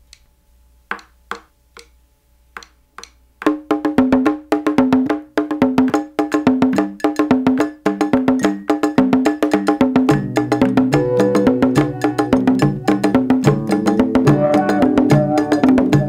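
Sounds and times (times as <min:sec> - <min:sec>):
wood block clicks: 0:00.9 - 0:02.0, 0:02.6 - 0:03.6
pitched percussion tune: 0:02.6 - 0:16.0.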